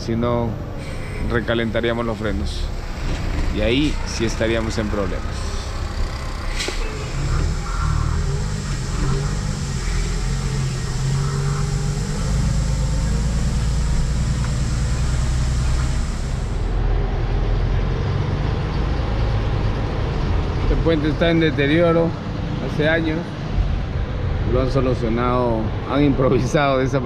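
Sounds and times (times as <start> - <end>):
truck engine running: 0.0 - 24.6
road noise: 0.0 - 27.0
high hiss: 6.5 - 16.8.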